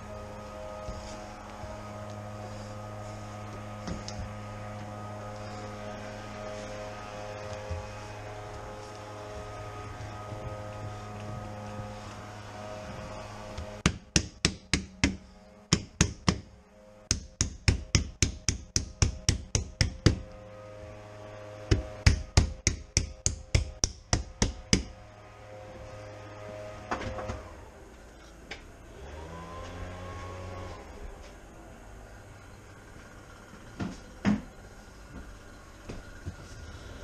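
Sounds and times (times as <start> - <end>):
rapid sharp knocks: 13.8 - 16.5.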